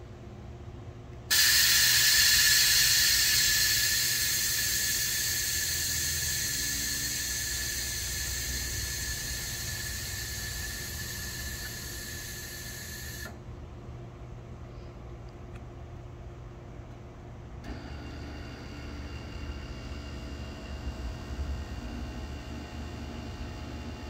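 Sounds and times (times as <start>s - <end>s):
air hissing with whistle: 1.3s - 13.4s.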